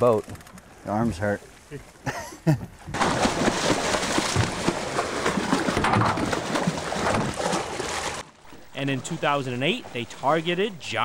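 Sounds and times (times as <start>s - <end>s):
fish thrashing and splashing water: 3.0s - 10.5s.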